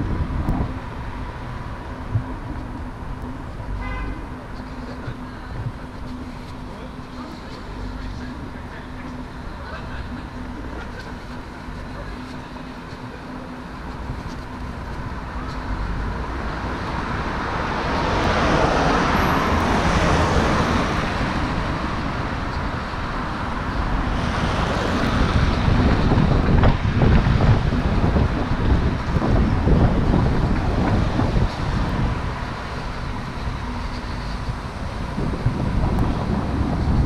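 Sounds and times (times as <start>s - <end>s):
wind buffeting microphone: 0.0s - 3.0s, 18.9s - 37.0s
road traffic: 0.0s - 37.0s
car passing: 15.9s - 37.0s.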